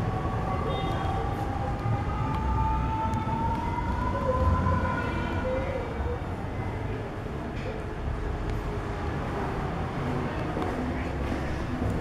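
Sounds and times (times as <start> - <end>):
rising whine of distant siren: 0.0 - 6.2
distant street traffic: 0.0 - 12.0.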